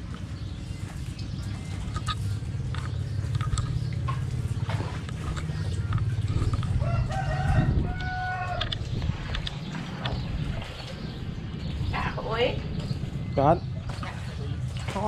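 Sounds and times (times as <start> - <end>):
fish splashing in shallow water: 0.0 - 11.9, 12.6 - 15.0
steady low rumble: 0.0 - 15.0
rooster crowing: 6.8 - 8.8.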